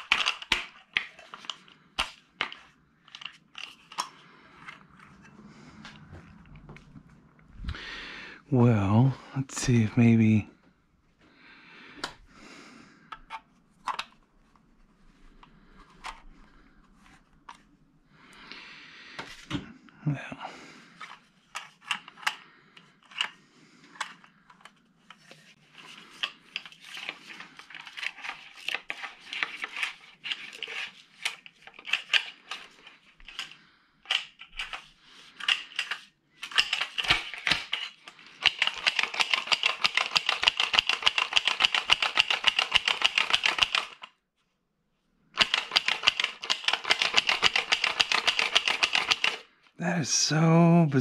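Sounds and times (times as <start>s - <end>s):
small parts clicking and rattling: 0.0s - 4.8s, 21.0s - 44.2s, 45.4s - 49.5s.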